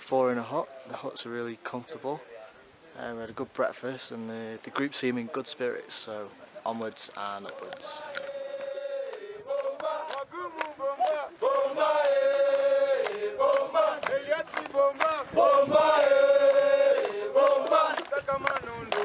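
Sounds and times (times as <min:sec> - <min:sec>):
group of voices chanting: 0:07.5 - 0:19.0.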